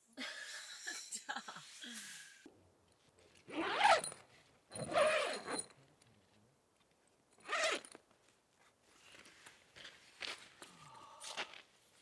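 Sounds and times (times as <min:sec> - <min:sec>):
tent zipper unzipping: 0:03.5 - 0:04.0, 0:04.8 - 0:05.6, 0:07.4 - 0:07.8.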